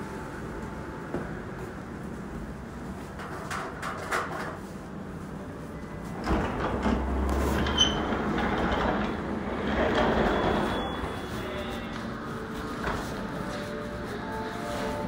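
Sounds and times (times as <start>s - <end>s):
heavy wooden door rumbling open: 6.2s - 11.1s.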